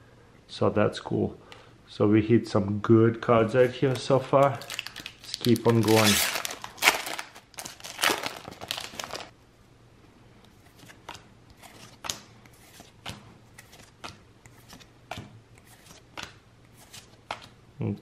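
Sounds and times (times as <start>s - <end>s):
foil pack crinkling: 4.4s - 9.3s
cards sliding and clicking: 10.5s - 17.6s.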